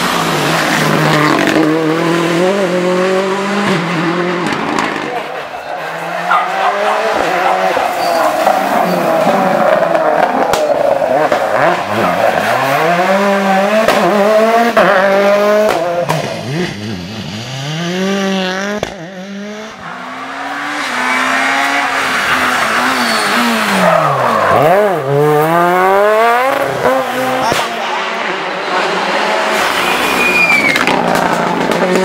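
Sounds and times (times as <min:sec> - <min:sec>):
rally cars revving past: 0:00.0 - 0:32.0.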